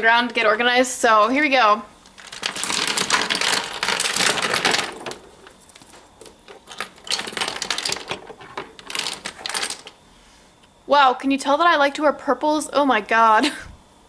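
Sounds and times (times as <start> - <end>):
plastic tubes clattering on floor: 2.1 - 10.0.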